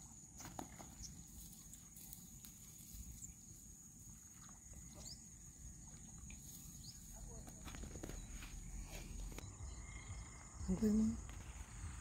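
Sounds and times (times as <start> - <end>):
faint chirps: 0.9 - 12.0
low rumble: 8.5 - 12.0.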